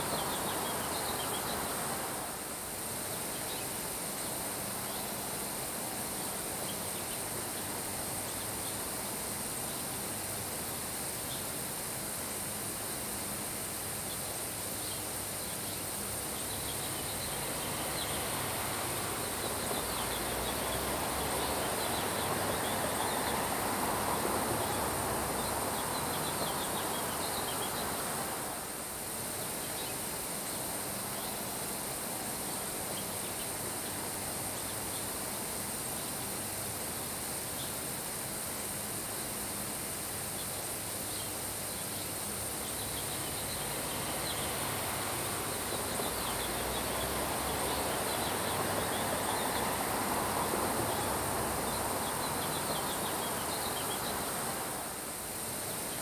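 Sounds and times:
wind: 0.0s - 56.0s
rain falling on grass: 13.6s - 35.5s, 36.2s - 56.0s.

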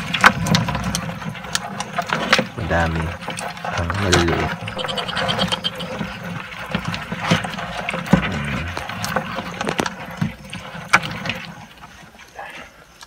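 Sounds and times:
low steady hum: 8.1s - 9.2s.

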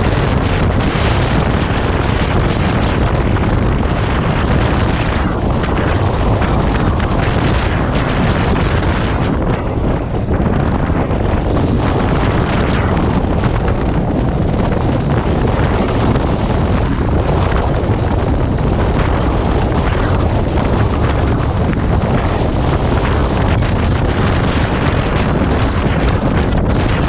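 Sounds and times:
motorcycle engine: 0.0s - 27.0s
road noise: 0.0s - 27.0s
wind noise on microphone: 0.0s - 27.0s.

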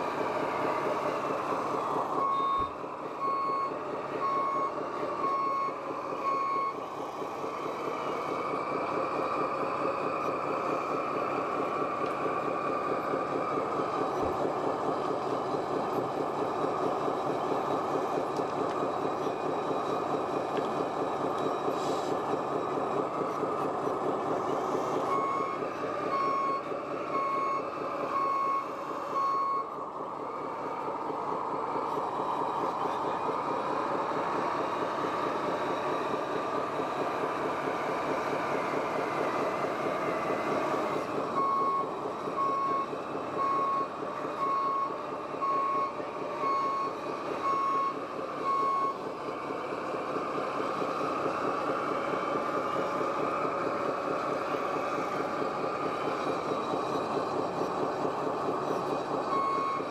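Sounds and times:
reversing beeper: 2.2s - 6.8s, 25.1s - 29.8s.

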